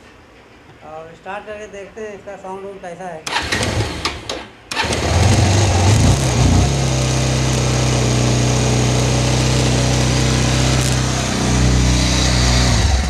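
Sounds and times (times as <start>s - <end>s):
motorcycle engine idling: 3.3s - 13.0s.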